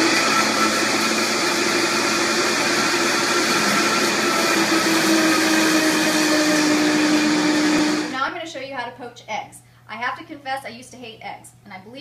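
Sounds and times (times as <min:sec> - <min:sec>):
blender motor whine: 0:00.0 - 0:08.2.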